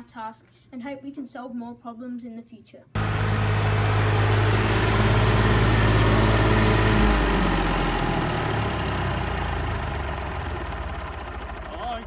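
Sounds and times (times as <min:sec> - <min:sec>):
tractor engine droning: 0:03.0 - 0:12.0.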